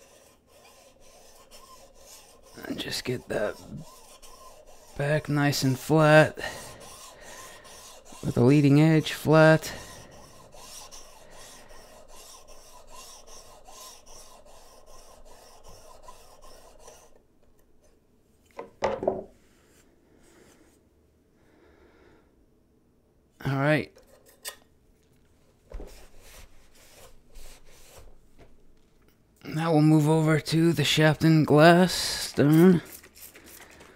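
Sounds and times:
blade rasping on sharpening plate: 0.0 - 17.2
knock: 18.6 - 19.3.

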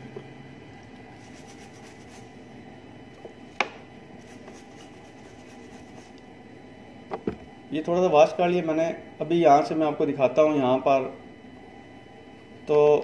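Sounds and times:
brush scrubbing circuit board: 1.1 - 2.4, 4.2 - 6.2.

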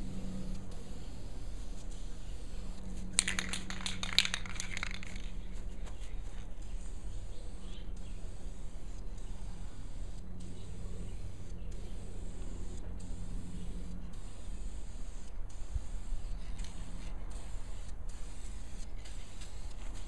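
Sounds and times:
aerosol can rattling: 3.1 - 5.4.

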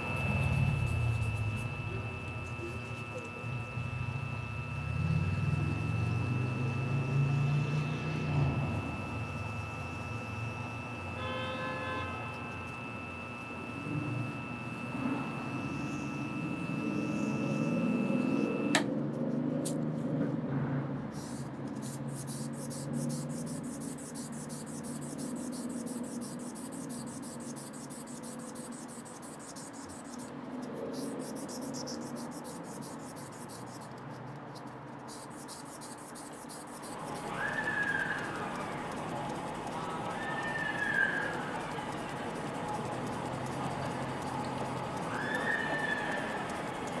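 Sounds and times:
high steady whine: 0.0 - 19.0, 21.0 - 47.0
scratchy rubbing on wood: 21.2 - 45.1
wood lathe humming: 22.2 - 30.2.

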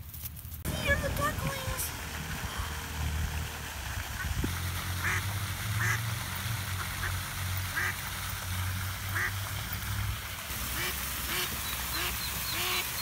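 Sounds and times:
duck quacking: 5.0 - 5.2, 5.8 - 6.0, 6.8 - 8.0, 9.1 - 9.3, 10.7 - 13.0.

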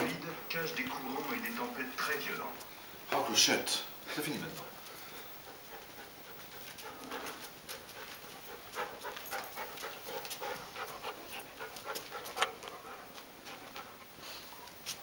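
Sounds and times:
dog panting: 4.5 - 15.0.

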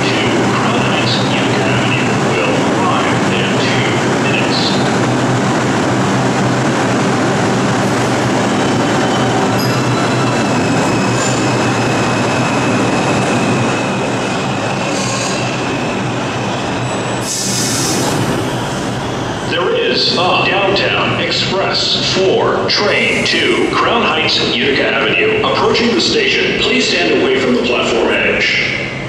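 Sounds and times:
wheels rumbling on rail: 0.0 - 19.6
subway train motors humming: 0.0 - 29.0
wheel squeal: 8.9 - 11.6.

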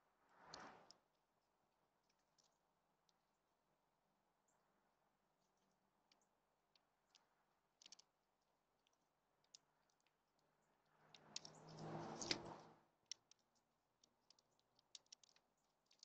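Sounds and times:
birds pecking and cracking seed: 0.3 - 16.0
soft rushing with low hum: 10.8 - 12.8.

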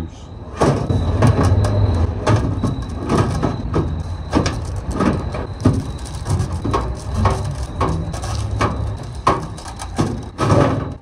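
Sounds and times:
sheet metal clicks and scrapes: 2.4 - 11.0.

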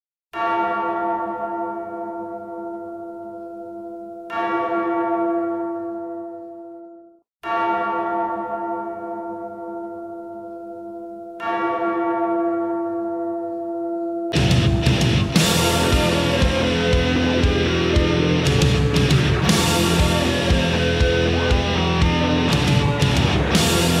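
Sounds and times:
large bell tolling: 7.4 - 24.0.

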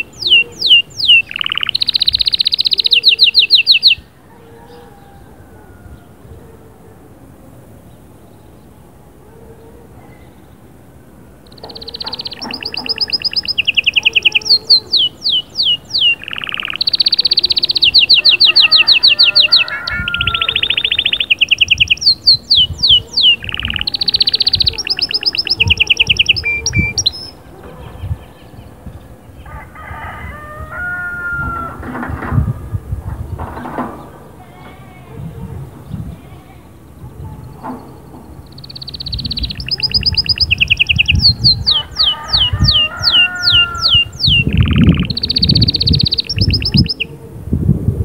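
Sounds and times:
canary singing trills: 0.0 - 5.2, 11.4 - 29.4, 35.3 - 47.2
soft bird calls: 0.0 - 6.9, 11.4 - 29.5, 30.7 - 47.3.

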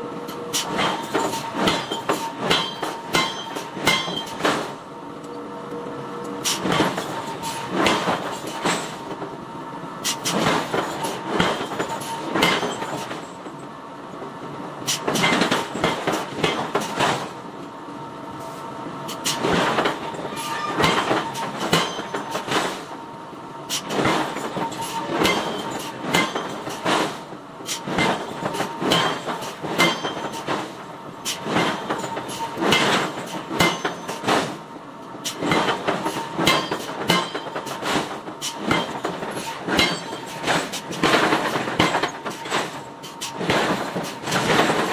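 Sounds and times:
hammer striking hot iron: 0.5 - 4.7, 12.4 - 13.1, 20.4 - 22.8, 23.8 - 30.6, 31.5 - 34.5, 36.4 - 38.1, 38.7 - 42.7.

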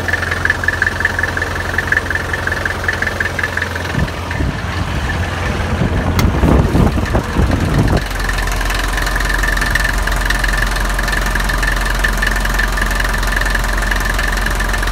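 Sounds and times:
diesel engine idling: 0.0 - 14.9
uneven low thumps: 0.8 - 10.3.

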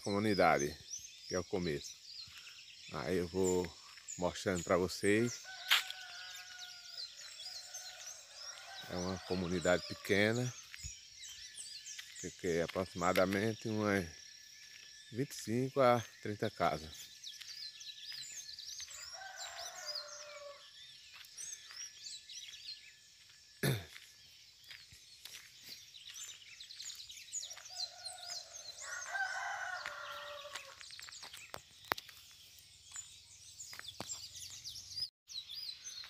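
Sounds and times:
small birds chirping: 0.0 - 36.0
rooster crowing: 5.3 - 10.1, 18.9 - 20.6, 27.7 - 30.8.

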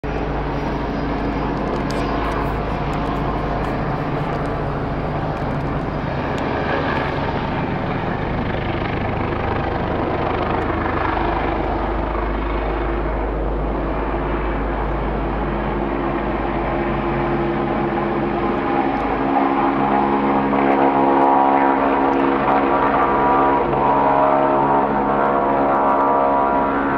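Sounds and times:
helicopter flying past: 0.0 - 26.9.

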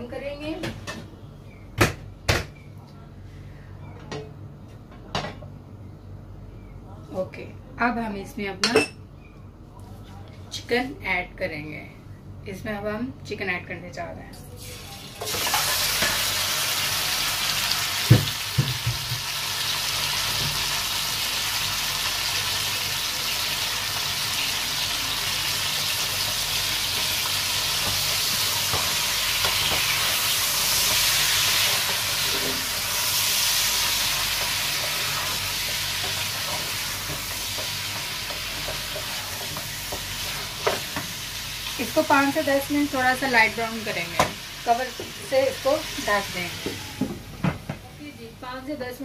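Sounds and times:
chicken sizzling in hot oil: 14.6 - 47.0.

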